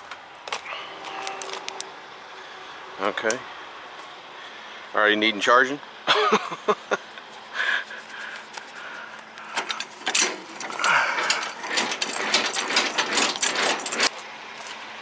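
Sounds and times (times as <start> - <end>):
metallic clicking and ratcheting: 9.5 - 14.2.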